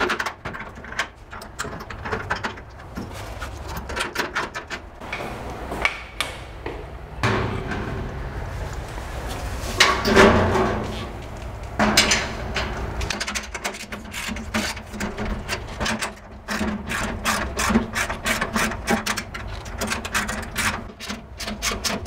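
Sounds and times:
steady low hum: 0:00.0 - 0:17.2.

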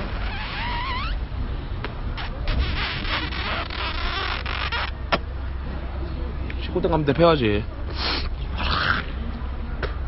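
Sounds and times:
breathy puffs and lip noises: 0:07.8 - 0:09.3.

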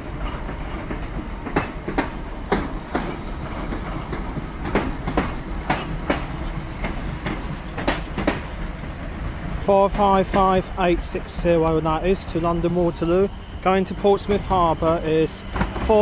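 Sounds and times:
wheels clicking over rail joints: 0:00.0 - 0:12.5
train low rumble: 0:00.0 - 0:16.0.

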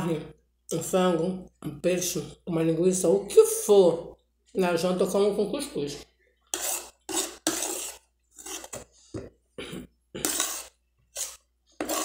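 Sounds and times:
metal spoon scraping a plate: 0:06.5 - 0:09.0, 0:10.2 - 0:12.0.

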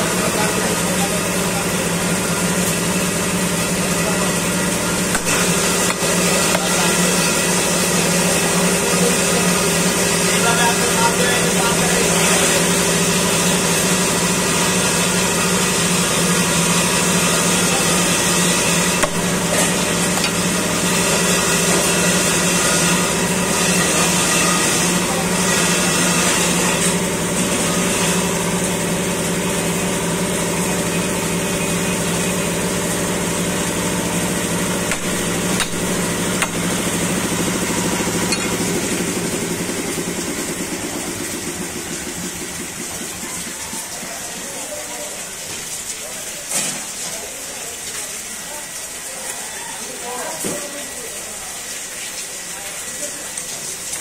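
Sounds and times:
people talking: 0:00.0 - 0:20.4, 0:23.9 - 0:26.7, 0:39.6 - 0:54.0
machine motor humming: 0:00.0 - 0:43.7
blade knocking on chopping block: 0:05.1 - 0:06.8, 0:19.0 - 0:19.2, 0:34.9 - 0:36.6.

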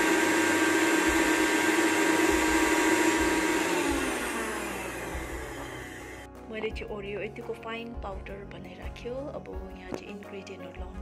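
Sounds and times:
mixer grinder running: 0:00.0 - 0:06.3
motor winding down: 0:00.0 - 0:06.3.

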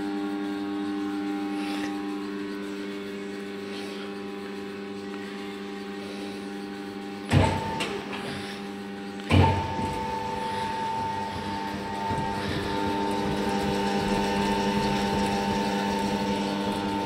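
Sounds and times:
electric drive humming: 0:00.0 - 0:17.0
motor whine: 0:00.0 - 0:17.0
heavy clunk: 0:07.3 - 0:08.3, 0:09.3 - 0:13.9.

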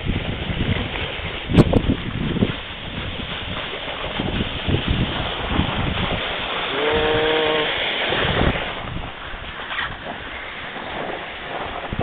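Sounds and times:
sled sliding over snow: 0:00.0 - 0:12.0
wind on microphone: 0:00.0 - 0:12.0.

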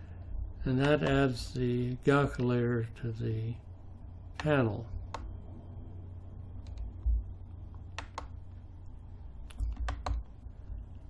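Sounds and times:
steady low hum: 0:00.0 - 0:11.0
computer mouse clicks: 0:05.1 - 0:05.3, 0:06.6 - 0:07.1, 0:07.7 - 0:08.4, 0:09.4 - 0:10.3.

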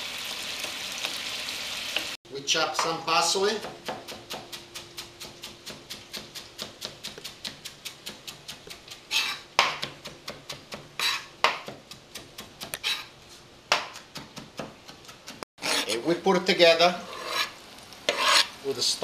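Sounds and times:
knife chopping on plastic board: 0:03.6 - 0:13.0, 0:13.7 - 0:15.4.

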